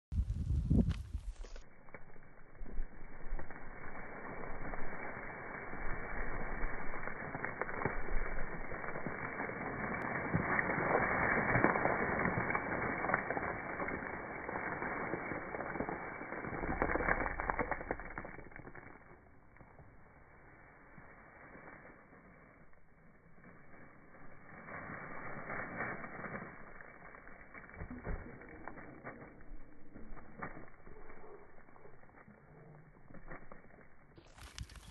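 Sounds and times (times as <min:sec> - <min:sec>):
rock crumbling and crackling: 0:00.1 - 0:34.9.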